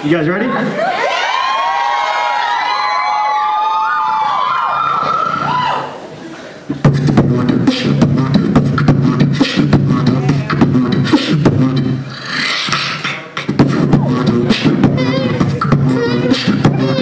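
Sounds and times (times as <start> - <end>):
beatbox kick and snare rhythm: 6.7 - 17.0.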